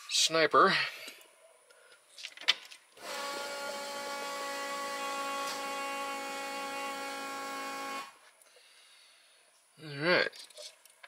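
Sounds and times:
electric fuel pump humming: 0:03.0 - 0:08.2.

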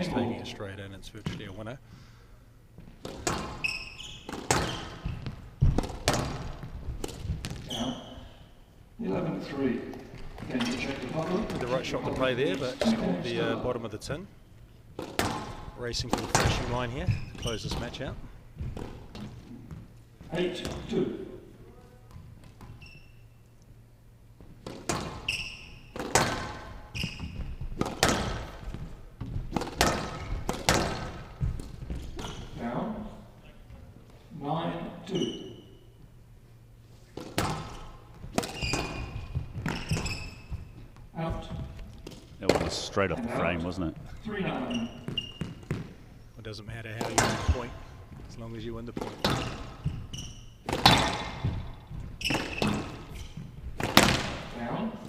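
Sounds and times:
shoes squeaking on court floor: 0:02.8 - 0:08.6, 0:09.8 - 0:13.4, 0:14.5 - 0:32.6, 0:35.0 - 0:36.2, 0:36.8 - 0:42.8, 0:43.4 - 0:46.2, 0:46.9 - 0:55.0
squash ball cracks: 0:04.3 - 0:07.7, 0:15.0 - 0:16.7, 0:25.9 - 0:26.8, 0:27.6 - 0:28.7, 0:29.4 - 0:32.3, 0:37.1 - 0:40.0, 0:50.6 - 0:51.8, 0:53.7 - 0:54.5.

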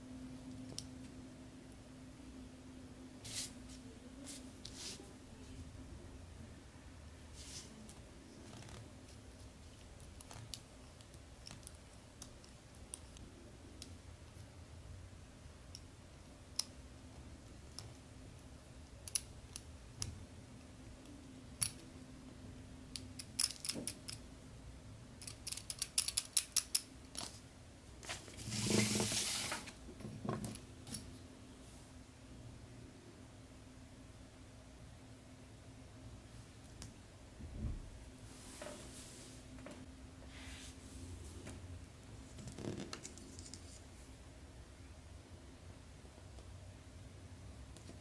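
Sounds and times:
rustling noise: 0:03.2 - 0:05.1, 0:07.3 - 0:07.8, 0:28.0 - 0:30.0, 0:37.6 - 0:41.6.

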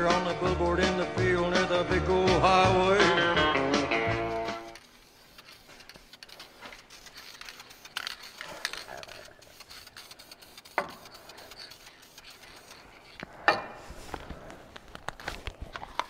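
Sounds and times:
rubbing and scraping on engine: 0:04.4 - 0:14.6.

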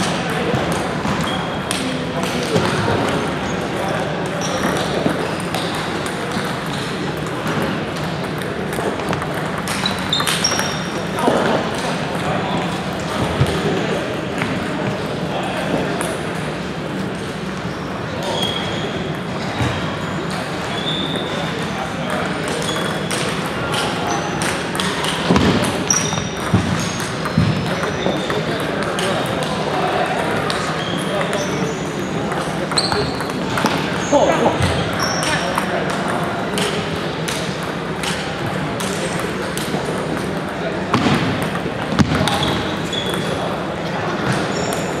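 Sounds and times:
table tennis balls clicking: 0:04.3 - 0:12.4, 0:22.2 - 0:29.5, 0:34.9 - 0:40.6
shoe squeaks: 0:09.7 - 0:11.0, 0:17.6 - 0:19.1, 0:20.7 - 0:21.3, 0:25.9 - 0:28.3, 0:30.6 - 0:32.0, 0:32.7 - 0:33.4, 0:34.0 - 0:35.4, 0:42.2 - 0:43.4, 0:44.3 - 0:45.0
short high squeaks: 0:09.8 - 0:10.9.

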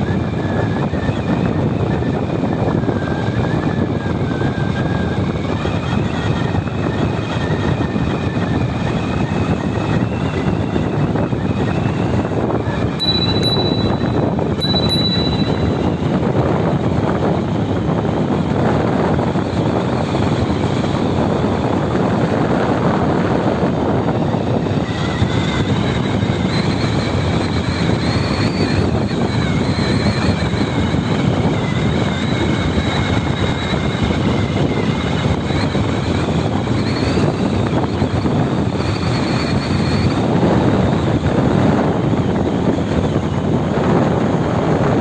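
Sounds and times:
wind roaring over microphone: 0:00.0 - 0:45.0
faint wavering high whistle: 0:13.0 - 0:16.5.

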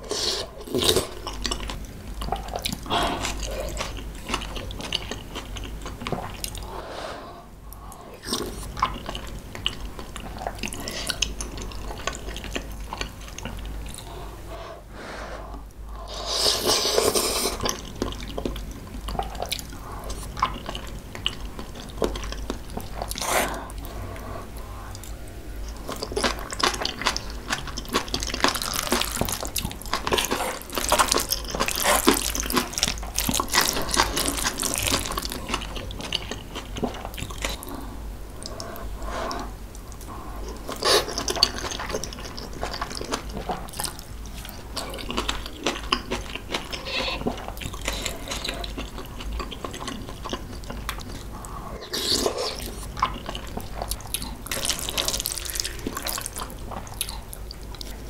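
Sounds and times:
person chewing food: 0:00.0 - 0:06.7, 0:07.7 - 0:14.6, 0:15.5 - 0:58.0.

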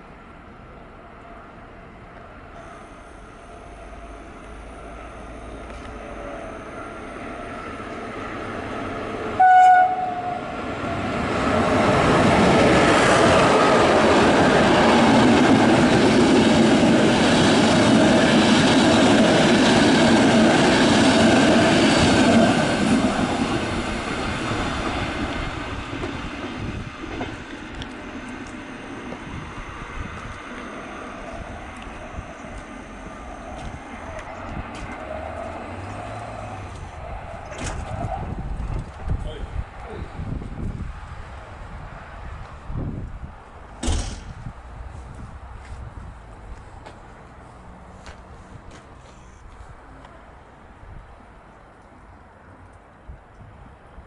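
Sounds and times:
train wheels rolling on rails: 0:02.2 - 0:39.4
train horn blast: 0:09.3 - 0:10.6.

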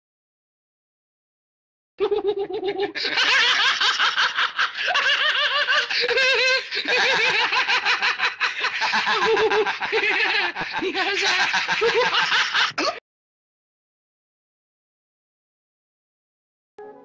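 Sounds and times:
high wavering giggle: 0:02.0 - 0:07.5
man laughing: 0:02.0 - 0:13.0.

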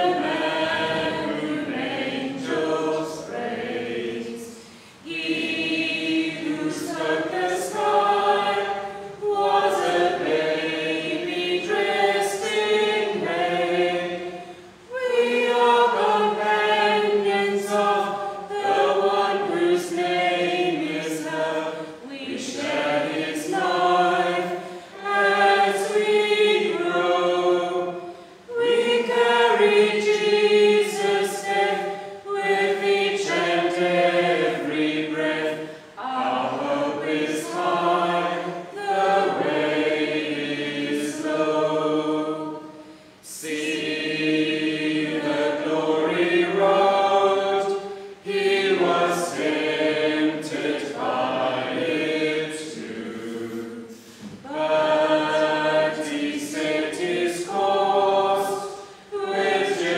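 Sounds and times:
congregation singing a hymn: 0:00.0 - 0:59.9.

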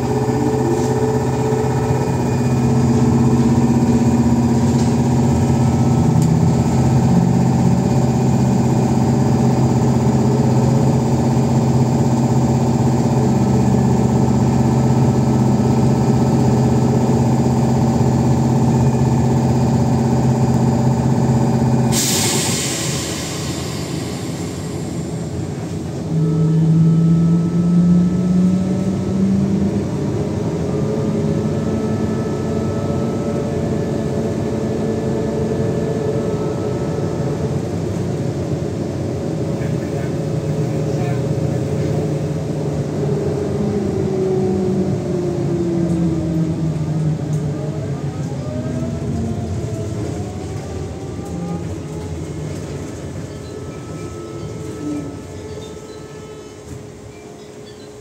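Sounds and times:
rising motor whine: 0:00.0 - 0:21.9, 0:23.1 - 0:37.9, 0:41.8 - 0:56.8
air hissing: 0:21.9 - 0:25.7.

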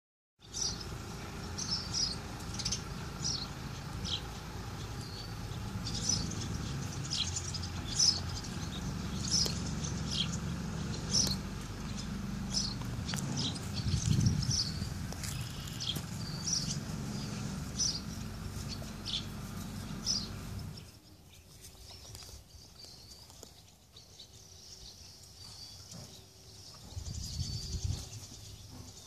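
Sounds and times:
small birds chirping: 0:00.4 - 0:29.0
steady low rumble: 0:07.7 - 0:20.8.

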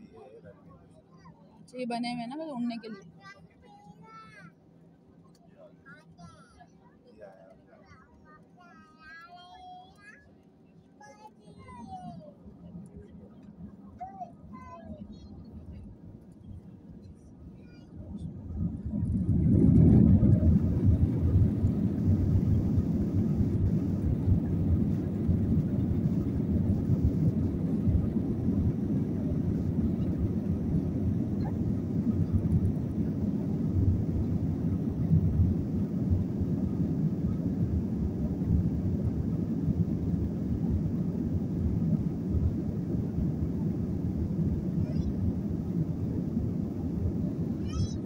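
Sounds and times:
jet engines rumbling in cabin: 0:09.8 - 0:48.0
wheels rumbling on runway: 0:11.4 - 0:48.0.

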